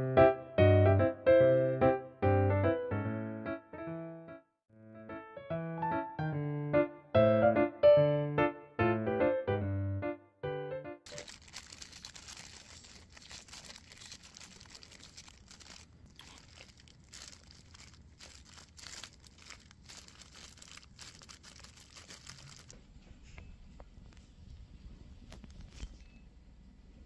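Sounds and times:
piano tune: 0:00.0 - 0:15.8
fruit peel tearing: 0:11.1 - 0:22.8
plastic glove crinkling: 0:11.1 - 0:23.0, 0:25.3 - 0:26.0.

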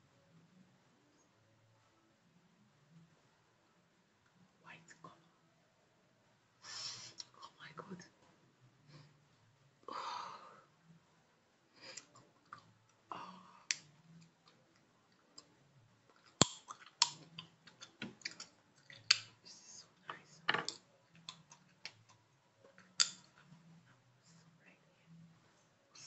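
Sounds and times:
sharp clicks and taps: 0:22.8 - 0:23.3.

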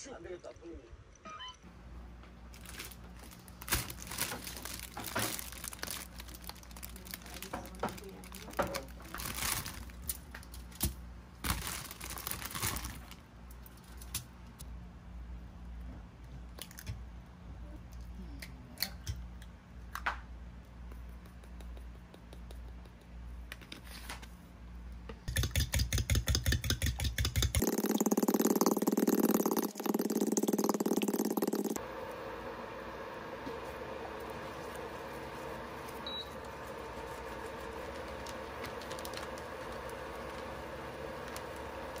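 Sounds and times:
plastic bag rustling: 0:02.5 - 0:10.3, 0:11.4 - 0:13.2, 0:36.8 - 0:42.0
eggs beaten in bowl: 0:25.3 - 0:31.8.

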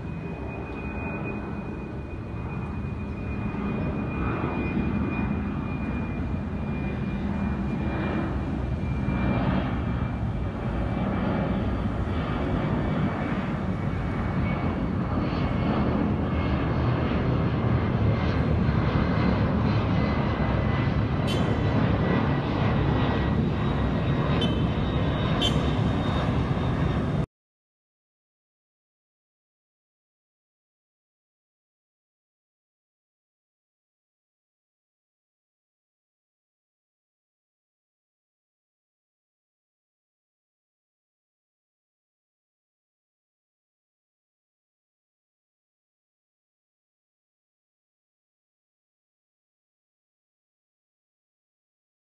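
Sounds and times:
faint high whine: 0:00.0 - 0:27.3
jet engine rumble: 0:00.0 - 0:27.3.

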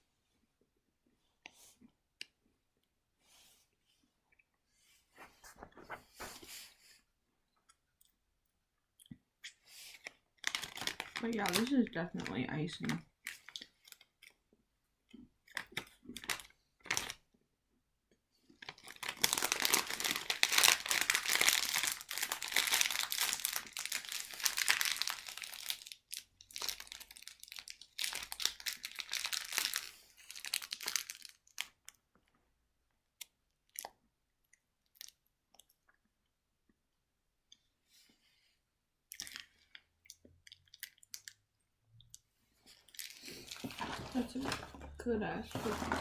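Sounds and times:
plastic wrapper crinkling: 0:10.0 - 0:14.4, 0:15.5 - 0:17.2, 0:18.5 - 0:32.0, 0:42.7 - 0:46.0.

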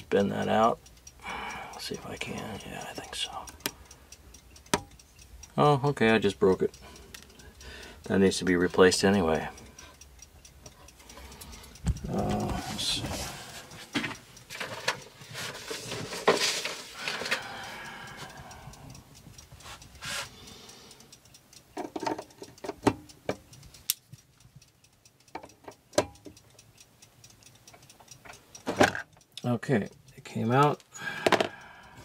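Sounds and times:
small clicks and knocks on clock: 0:00.0 - 0:32.0.

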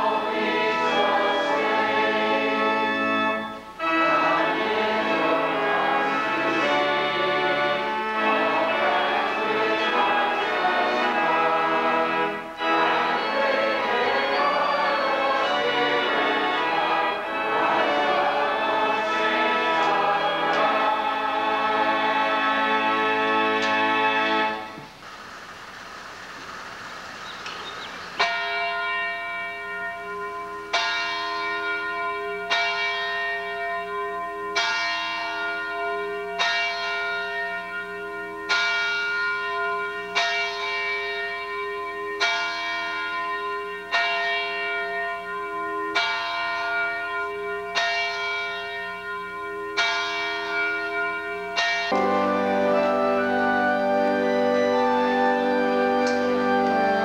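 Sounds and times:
church bell tolling: 0:00.0 - 0:25.0, 0:27.3 - 0:57.0
steady hiss: 0:24.6 - 0:28.2.

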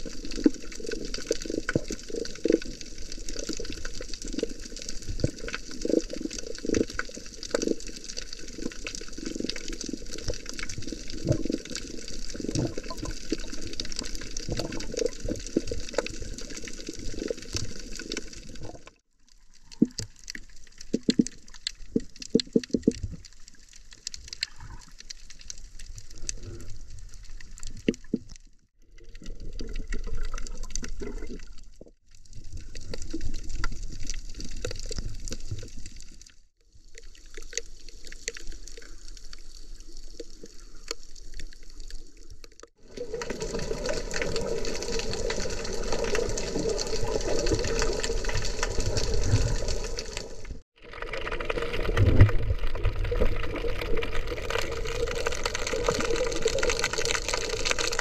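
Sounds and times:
muffled underwater water movement: 0:00.0 - 0:58.0.

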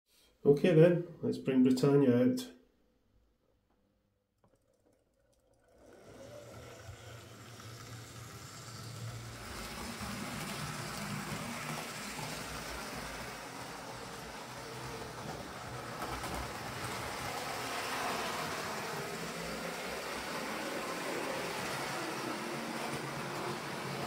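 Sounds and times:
model train motor hum: 0:05.6 - 0:24.0
wheels rattling on track: 0:06.5 - 0:24.0.

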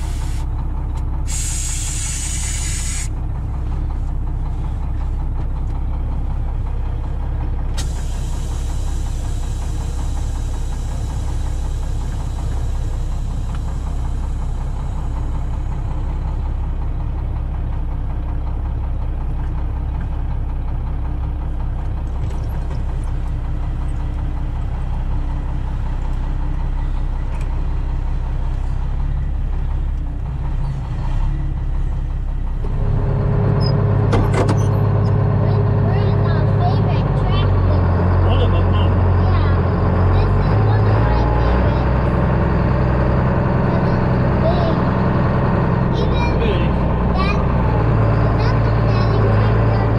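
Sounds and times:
diesel tractor engine idling: 0:00.0 - 0:49.9
truck engine idling: 0:00.0 - 0:49.9.

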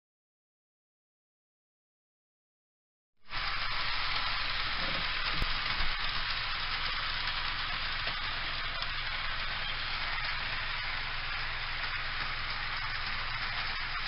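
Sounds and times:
model train hissing whir: 0:03.3 - 0:14.0.

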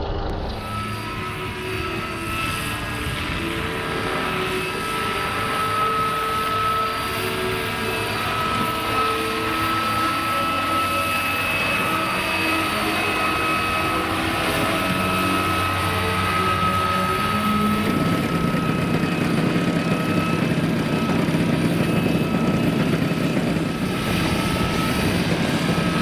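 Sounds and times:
model helicopter whine: 0:00.0 - 0:26.0.

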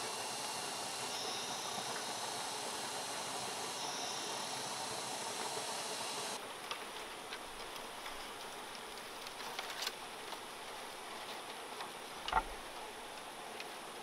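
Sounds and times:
high even drone: 0:00.0 - 0:06.4
outdoor background hiss: 0:00.0 - 0:14.0.

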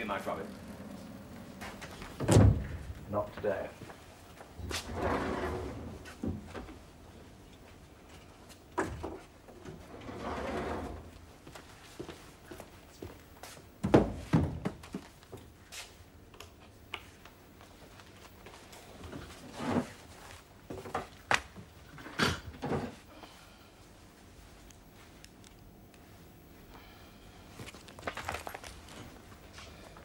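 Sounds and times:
footsteps: 0:00.0 - 0:04.9.

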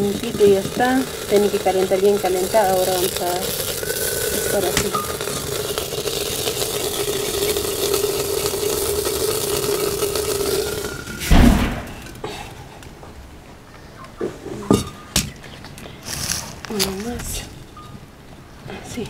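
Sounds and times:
grain toasting hiss: 0:00.0 - 0:12.2, 0:16.0 - 0:17.4
loud thump: 0:11.2 - 0:12.2.

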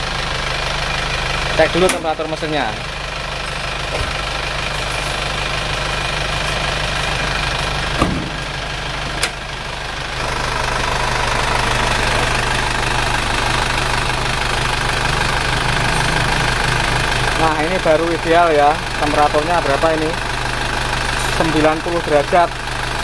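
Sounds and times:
diesel engine idling: 0:00.0 - 0:23.0
short knocks: 0:08.0 - 0:08.5.

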